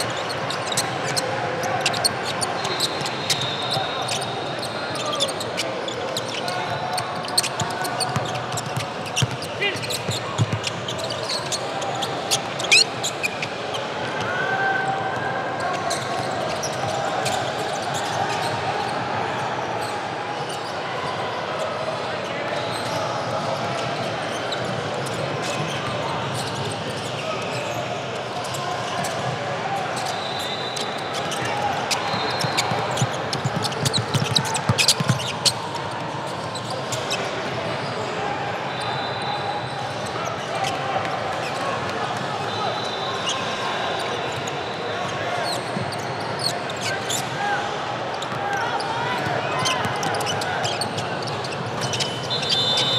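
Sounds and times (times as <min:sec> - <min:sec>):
sneakers squeaking: 0:00.0 - 0:13.8, 0:30.0 - 0:35.6, 0:42.4 - 0:47.2, 0:48.2 - 0:52.9
murmur of spectators: 0:00.0 - 0:52.9.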